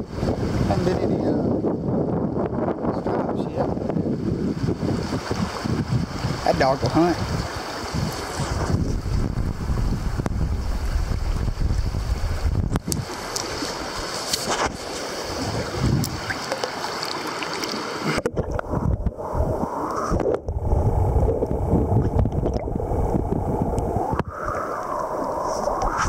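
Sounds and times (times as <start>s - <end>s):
wind rumbling on microphone: 0.0s - 16.7s, 18.0s - 26.0s
river water over rapids: 4.5s - 18.8s.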